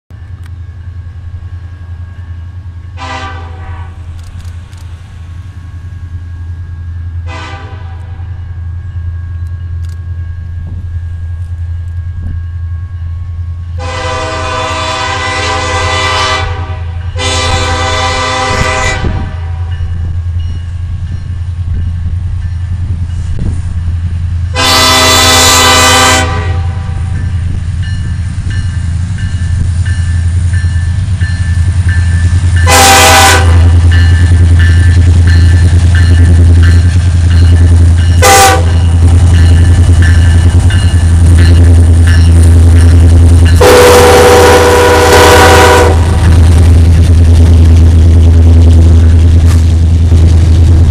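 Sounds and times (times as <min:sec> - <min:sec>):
diesel locomotive engine rumble: 0:00.1 - 0:50.9
train air horn blasts: 0:03.0 - 0:04.0, 0:07.2 - 0:08.3, 0:13.8 - 0:19.8, 0:24.5 - 0:27.2, 0:32.6 - 0:34.0, 0:38.2 - 0:39.2, 0:43.6 - 0:46.6.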